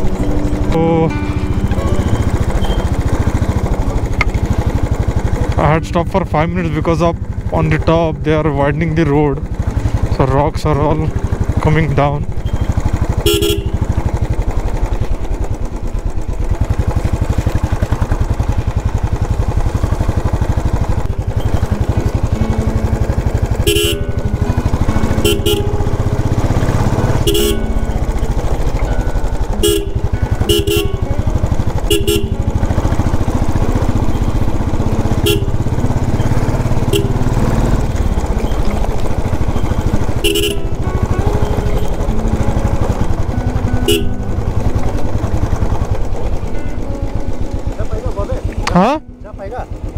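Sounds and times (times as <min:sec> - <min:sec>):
motorcycle engine idling: 0:00.0 - 0:49.9
vehicle horns beeping: 0:01.2 - 0:03.8, 0:11.2 - 0:15.0, 0:19.6 - 0:46.2.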